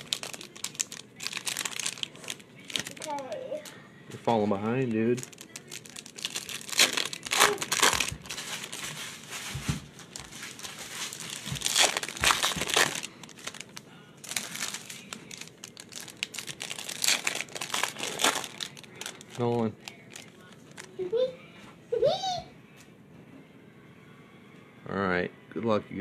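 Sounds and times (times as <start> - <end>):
foil wrappers crinkling and tearing: 0.0 - 3.8, 4.9 - 21.0.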